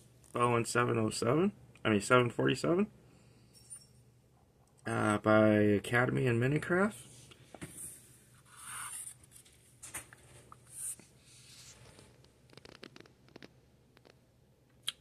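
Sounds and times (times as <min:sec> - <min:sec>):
faint rustling and scratching: 0:06.8 - 0:14.2.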